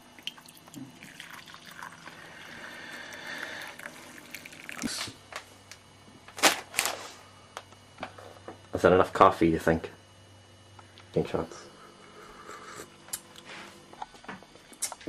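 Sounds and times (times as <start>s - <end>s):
coffee pouring into cup: 0.0s - 5.2s.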